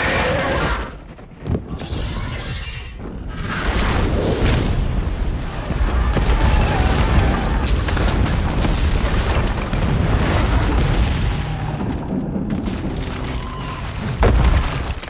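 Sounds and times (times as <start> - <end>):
deep booming explosions: 3.0 - 15.0.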